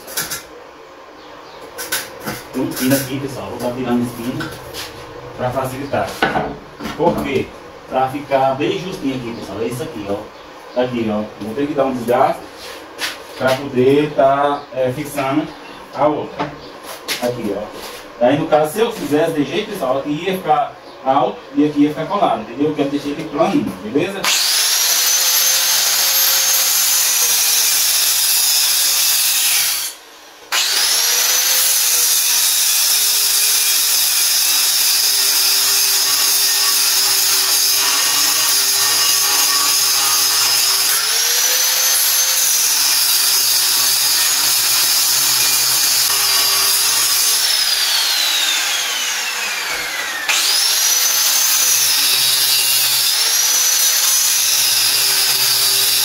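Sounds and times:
angle grinder grinding steel: 1.8 - 6.1, 24.2 - 56.0.

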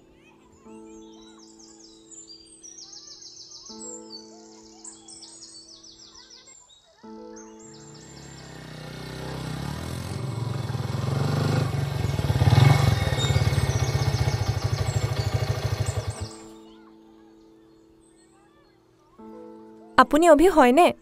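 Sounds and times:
motorcycle engine idling: 8.0 - 16.5.

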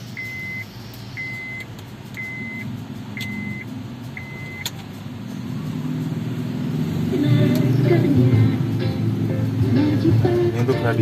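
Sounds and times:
car warning beeps: 0.0 - 4.8.

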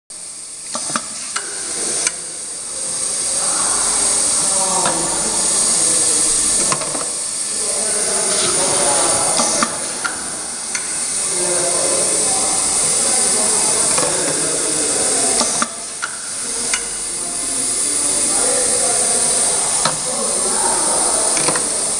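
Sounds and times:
machine hissing: 0.1 - 21.9
machine clicks and knocks: 0.7 - 2.2, 6.5 - 7.2.

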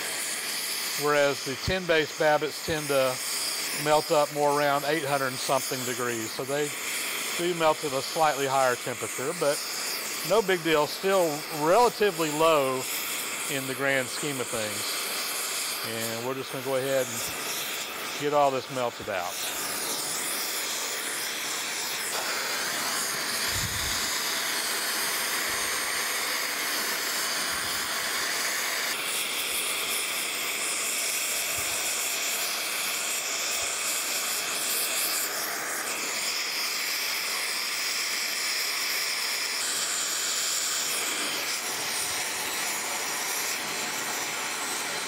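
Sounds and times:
gas torch flame hissing: 0.0 - 45.0.

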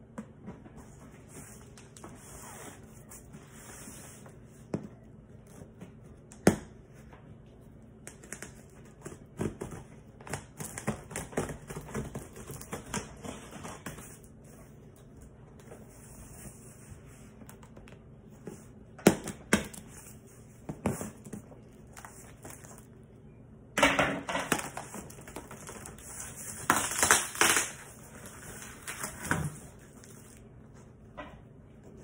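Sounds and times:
plastic wrap crinkling and tearing: 24.5 - 30.4.

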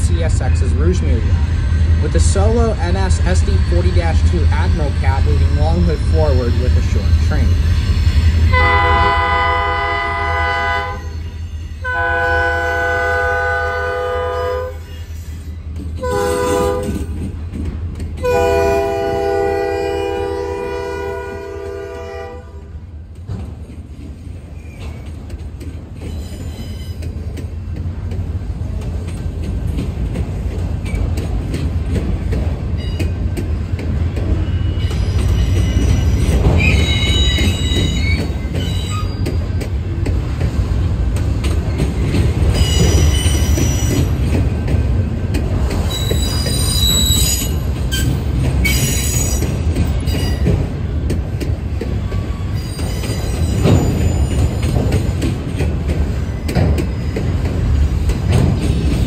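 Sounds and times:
train rumble: 0.0 - 59.0
train wheel squeal: 4.8 - 8.6, 10.8 - 11.9, 14.4 - 17.1, 24.2 - 25.3, 26.0 - 27.6, 32.8 - 33.2, 34.2 - 39.7, 41.4 - 44.3, 45.8 - 50.7, 51.9 - 55.3, 56.0 - 57.8
locomotive horn blasts: 8.5 - 11.1, 11.8 - 14.8, 16.0 - 17.0, 18.2 - 22.6
freight cars clattering: 23.1 - 59.0.

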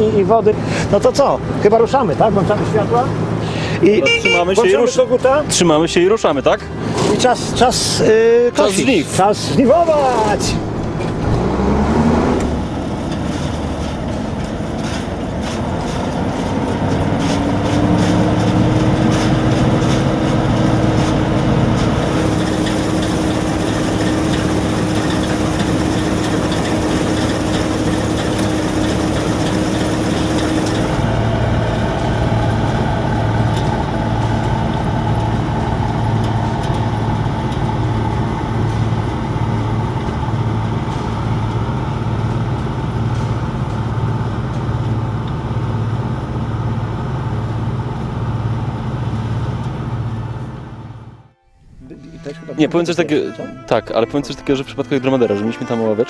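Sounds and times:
combine harvester running: 0.0 - 55.8
machinery whine: 0.0 - 56.0
pulsing low throb: 50.1 - 54.7.

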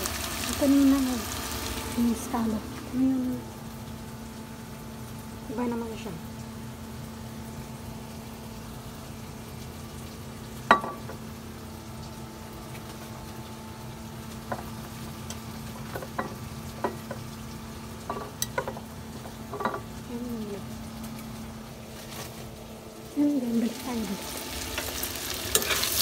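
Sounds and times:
food sizzling in a pan: 0.0 - 26.0
glass bottles clinking on counter: 19.5 - 19.9.

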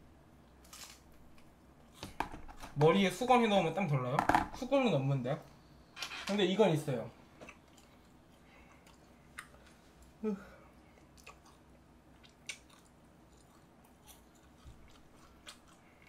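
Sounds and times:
person humming: 10.2 - 10.6.

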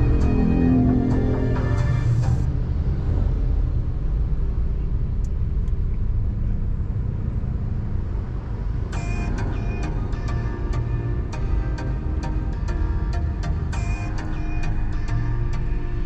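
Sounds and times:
background music: 0.0 - 2.6, 8.9 - 16.0
car engine and tyres rumbling: 0.0 - 16.0.

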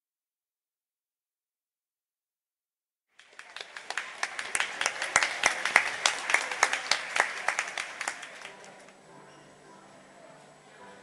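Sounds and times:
audience applauding: 3.2 - 8.9.

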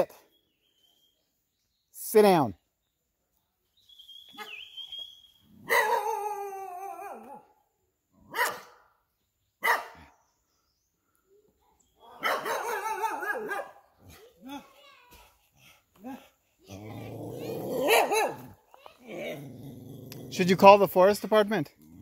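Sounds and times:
dog barking: 5.6 - 6.3, 8.3 - 8.9, 9.6 - 10.1, 12.2 - 14.2, 17.7 - 18.6.

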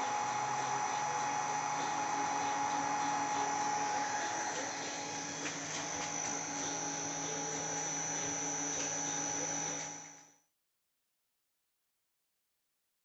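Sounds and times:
electric motor humming: 0.0 - 10.3
high-pitched motor whine: 0.0 - 10.4.

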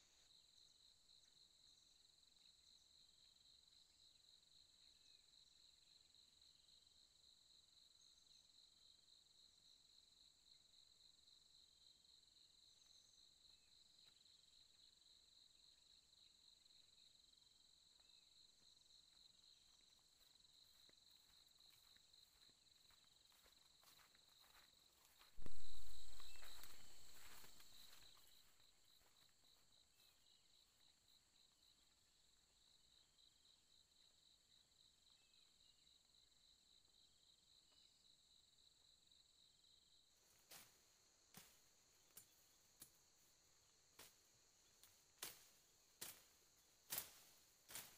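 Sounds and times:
insects trilling: 18.0 - 31.8.

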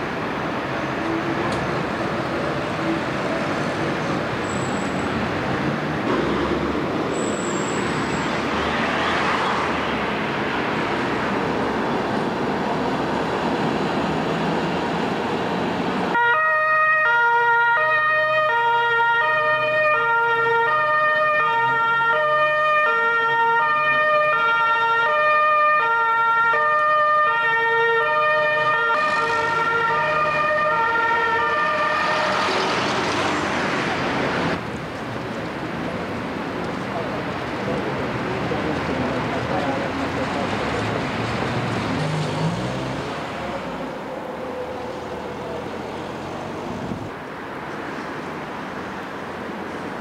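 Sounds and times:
road traffic noise: 0.0 - 50.0
two-tone emergency siren: 16.1 - 32.7.

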